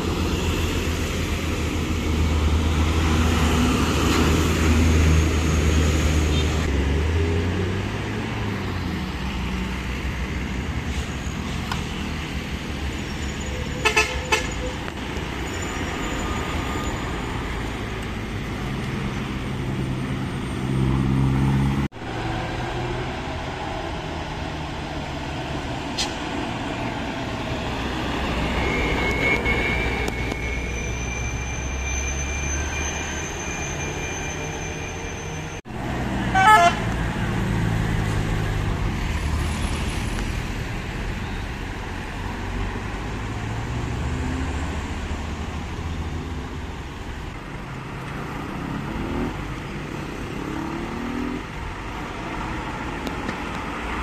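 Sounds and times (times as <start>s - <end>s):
vehicle engines accelerating: 0.0s - 13.8s, 14.5s - 33.1s, 35.4s - 54.0s
vehicle horn: 13.8s - 14.7s, 36.3s - 36.9s.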